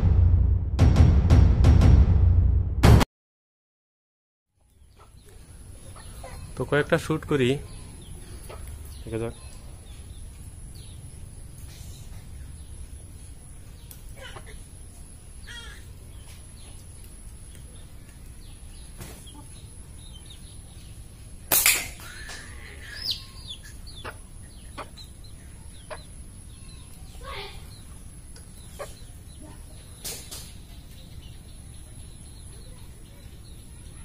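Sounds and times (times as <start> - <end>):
slingshot bands snapping: 21.5 - 22.0.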